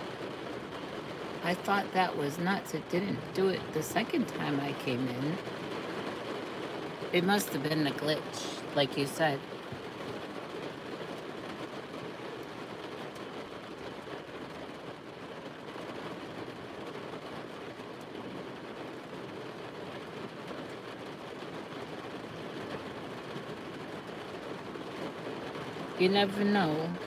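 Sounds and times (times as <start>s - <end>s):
rain on car roof: 0.0s - 27.0s.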